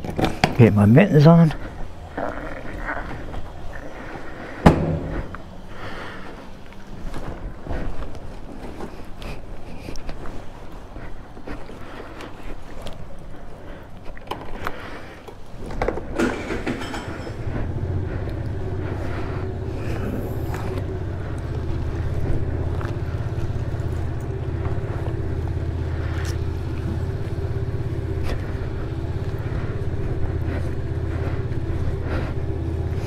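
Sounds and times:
handling noises: 0:02.7 - 0:33.0
scooter engine starting and idling: 0:15.6 - 0:33.0.

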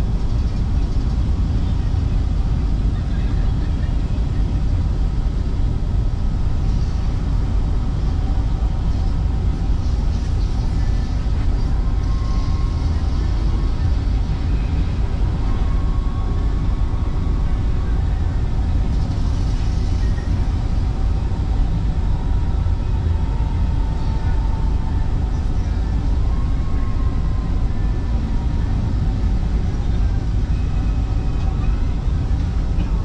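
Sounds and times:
faint whining tones: 0:00.0 - 0:33.0
train wheels rumbling on rails: 0:00.0 - 0:33.0.

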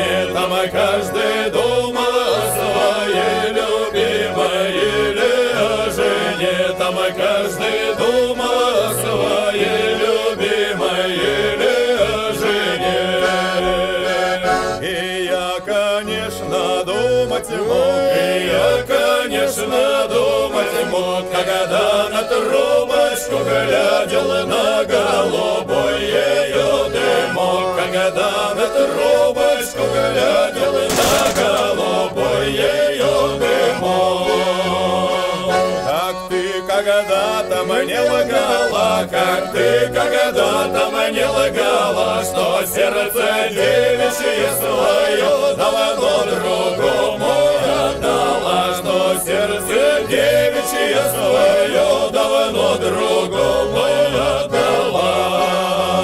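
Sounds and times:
choir chanting: 0:00.0 - 0:56.0
sharp hit: 0:30.9 - 0:32.1.

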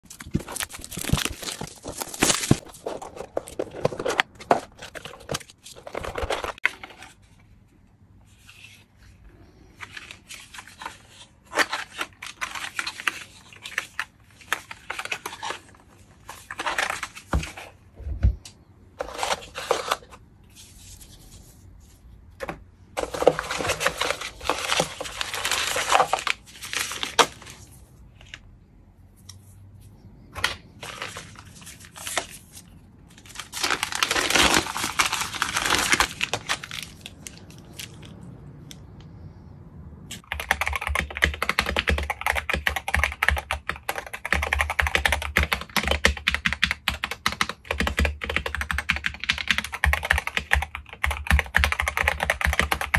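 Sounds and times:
plastic bags crinkling and tearing: 0:00.0 - 0:06.7, 0:33.1 - 0:38.2.

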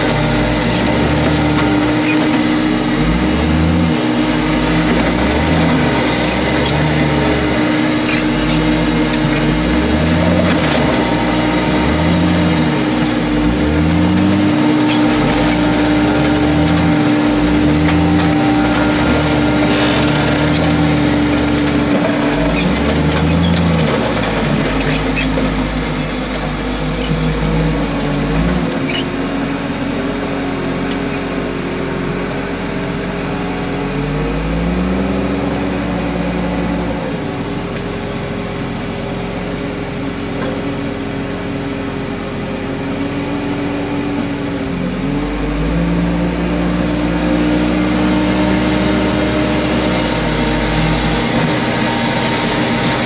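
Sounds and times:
heavy machine diesel engine: 0:00.0 - 0:53.0.

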